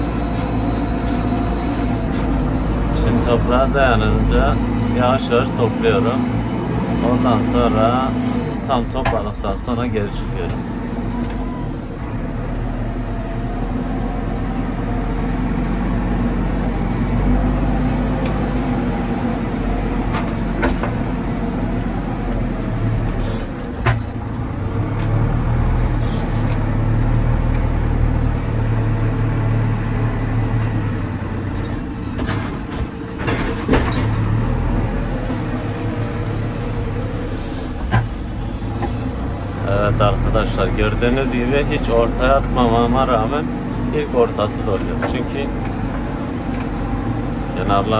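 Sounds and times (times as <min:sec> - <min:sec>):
backhoe diesel engine under load: 0:00.0 - 0:47.9
sharp knocks and clanks: 0:23.8 - 0:24.2, 0:31.6 - 0:34.3.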